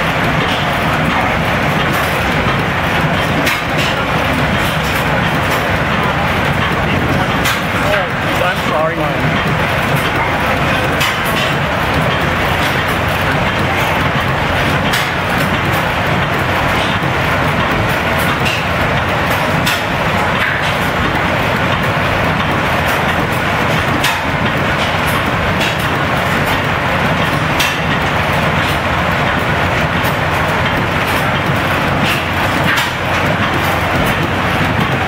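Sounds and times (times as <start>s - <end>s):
engine pops: 0.0s - 35.0s
flywheel engines clattering: 0.0s - 35.0s.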